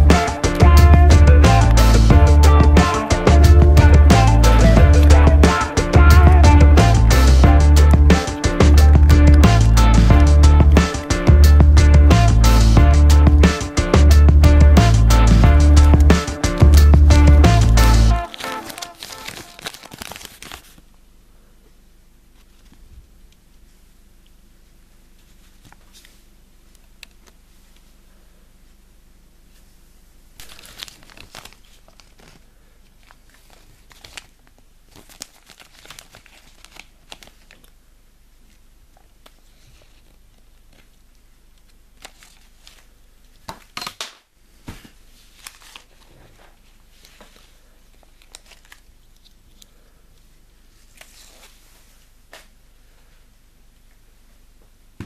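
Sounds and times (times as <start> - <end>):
paper leaflet crinkling: 18.1 - 20.9, 30.4 - 37.8, 41.6 - 42.9, 45.1 - 49.7, 50.8 - 52.0.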